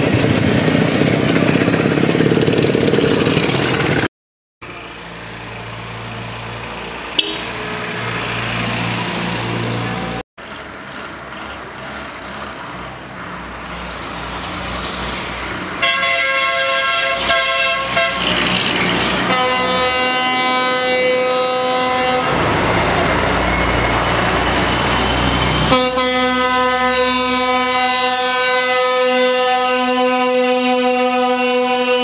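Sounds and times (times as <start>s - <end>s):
truck engines rumbling: 0.0s - 32.0s
truck horn blasts: 7.2s - 7.7s, 15.8s - 18.4s, 19.1s - 22.5s, 25.6s - 32.0s.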